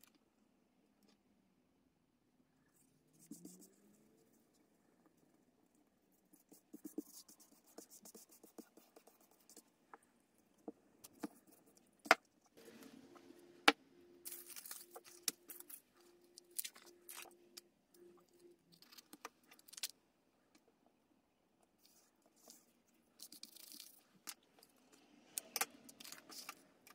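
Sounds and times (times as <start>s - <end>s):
paper rustling: 14.3s - 17.4s.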